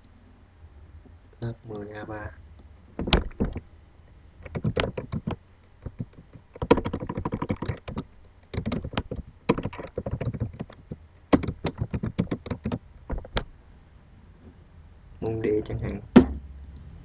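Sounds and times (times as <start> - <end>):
typing on computer keyboard: 4.4 - 13.4.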